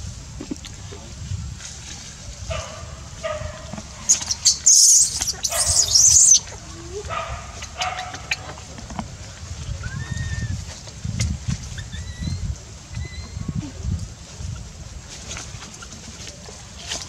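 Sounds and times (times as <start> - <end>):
infant monkey screaming: 4.1 - 6.5
infant monkey whimpering: 4.6 - 6.4.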